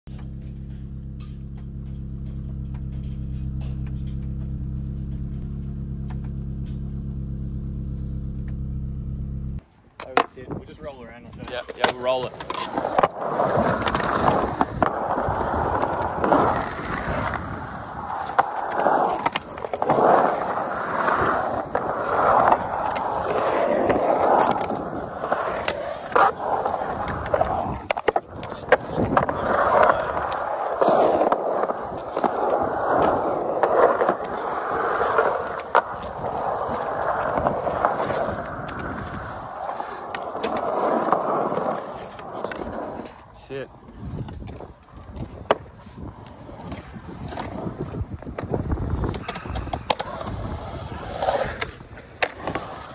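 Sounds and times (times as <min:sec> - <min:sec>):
skateboard wheels rolling on concrete: 0:00.1 - 0:52.9
skateboard clacks: 0:11.3 - 0:52.9.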